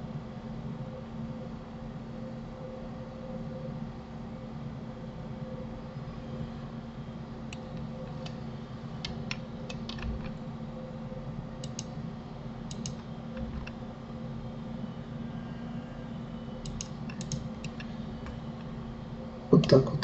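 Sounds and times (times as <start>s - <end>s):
steady low hum: 0.0s - 20.0s
mouse and keyboard clicks: 11.6s - 11.9s, 12.7s - 13.8s, 16.6s - 18.4s.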